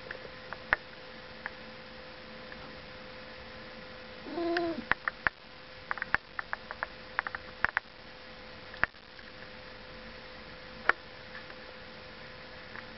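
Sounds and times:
steady low hum: 0.0 - 12.9
sharp clicks and taps: 4.6 - 7.9.

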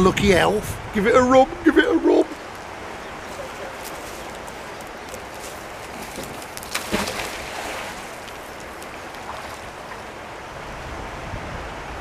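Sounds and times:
steady outdoor hiss: 0.0 - 12.0
magnet splashing into water: 6.0 - 8.4.

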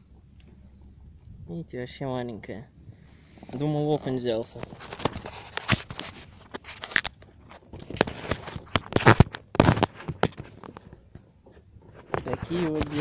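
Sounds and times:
clothing rustling against microphone: 2.8 - 13.0.

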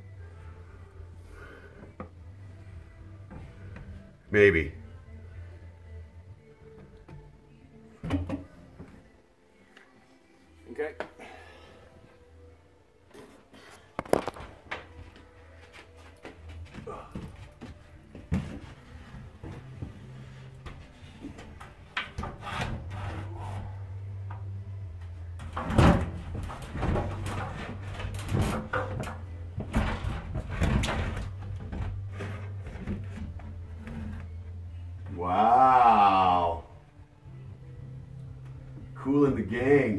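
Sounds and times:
knocks and scrapes on wood: 25.4 - 34.3.

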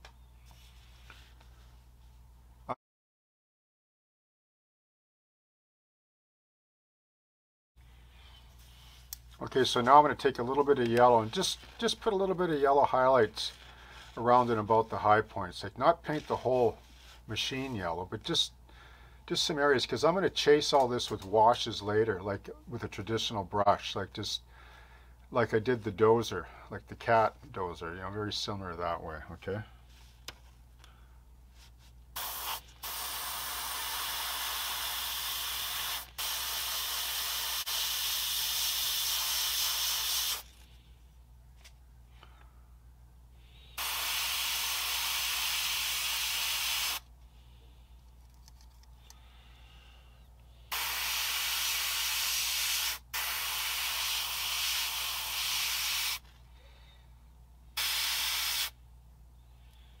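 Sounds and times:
airbrush spraying hiss: 32.2 - 40.6, 43.8 - 47.0, 50.7 - 56.2, 57.8 - 58.8.

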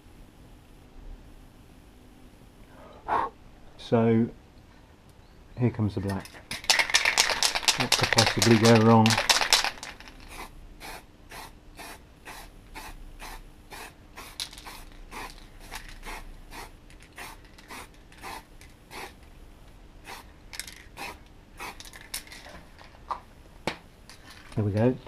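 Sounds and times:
spray can hissing puffs: 6.6 - 19.2, 20.0 - 22.3.

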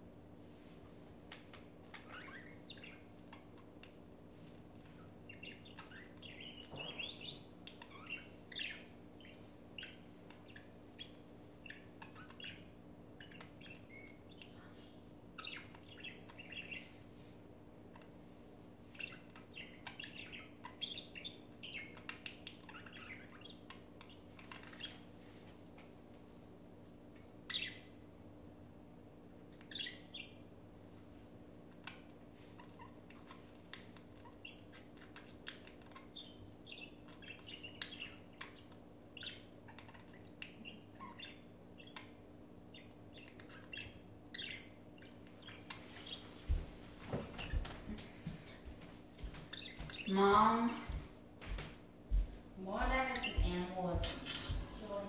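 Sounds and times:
faint steady hum: 0.0 - 55.0
budgerigars chirping: 1.3 - 4.0, 4.8 - 17.0, 18.9 - 25.0, 27.4 - 28.0, 29.6 - 30.4, 31.8 - 46.3, 49.3 - 50.6, 52.7 - 55.0.

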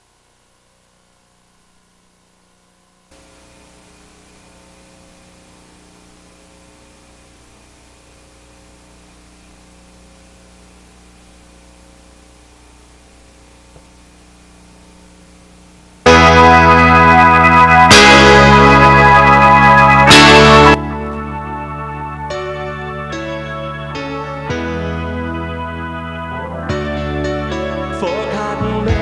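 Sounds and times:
low electrical hum: 0.0 - 17.7
tape hiss: 0.0 - 29.0
music with guitar and keyboard: 16.1 - 29.0.

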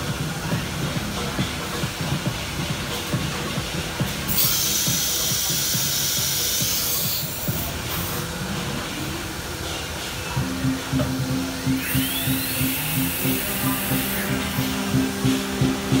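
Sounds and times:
compressed air hissing: 4.2 - 8.4, 11.1 - 16.0
background music: 8.4 - 16.0.

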